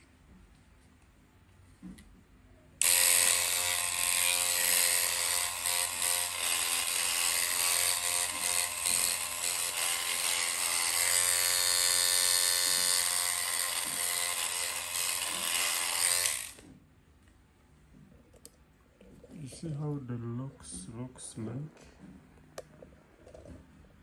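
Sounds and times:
electric hair machine motor running: 2.8s - 16.6s.

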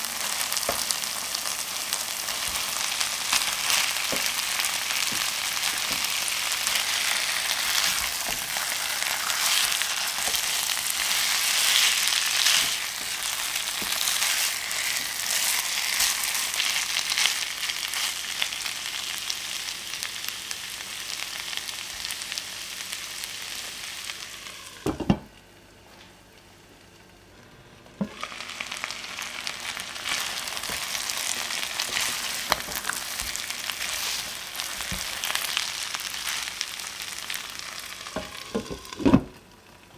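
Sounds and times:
tongs and spatula turning food: 0.0s - 19.0s, 28.0s - 39.2s
chicken sizzling in a pan: 0.0s - 25.1s, 28.0s - 39.9s.

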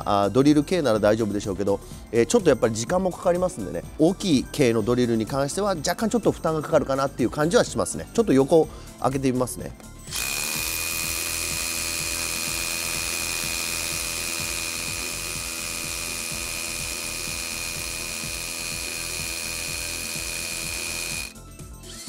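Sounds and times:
hammer drill boring into concrete: 10.0s - 21.4s.

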